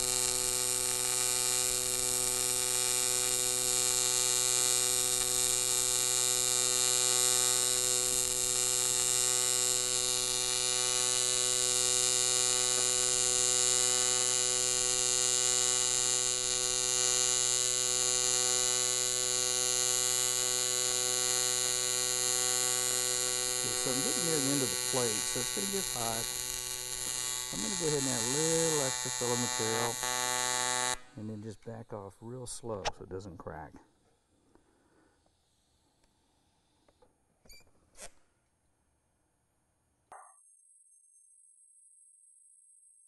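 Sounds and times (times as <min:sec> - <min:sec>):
welding arc buzzing: 0:00.0 - 0:31.2.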